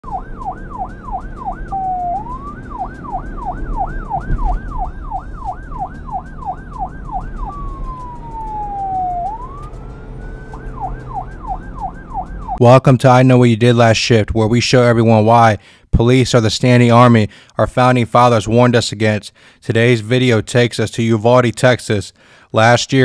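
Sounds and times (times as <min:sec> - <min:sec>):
police car siren yelping and wailing: 0:00.0 - 0:12.6
low rumble: 0:00.3 - 0:09.8.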